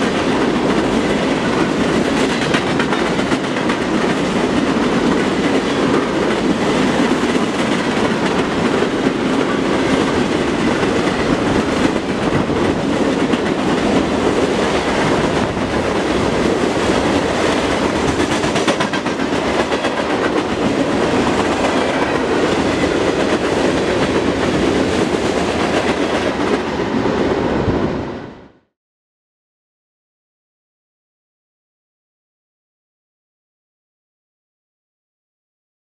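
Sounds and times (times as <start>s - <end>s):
freight cars rolling on rails: 0.0s - 27.9s.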